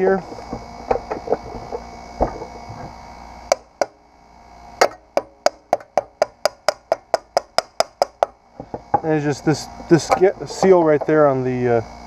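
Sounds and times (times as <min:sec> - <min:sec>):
hand tool tapping on metal: 0:10.0 - 0:11.2.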